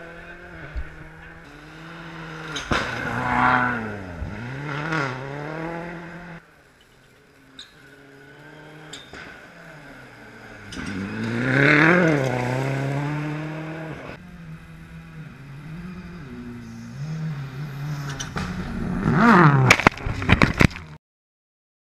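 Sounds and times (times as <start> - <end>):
rally car engine passing: 0.0 - 20.4
sharp cracks: 19.4 - 21.0.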